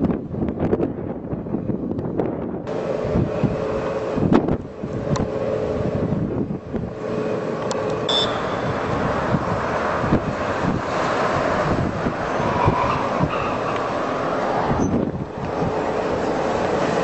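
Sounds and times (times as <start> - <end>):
engine hum: 0.0 - 17.0
traffic rumble: 0.0 - 17.0
wind on microphone: 0.0 - 17.0.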